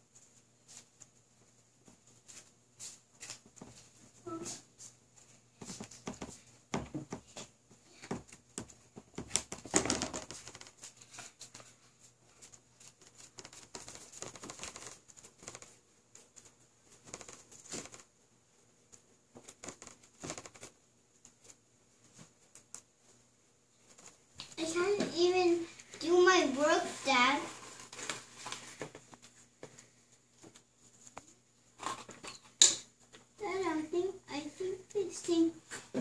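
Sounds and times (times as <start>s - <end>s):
paper crinkling: 9.2s - 18.1s, 25.4s - 32.3s.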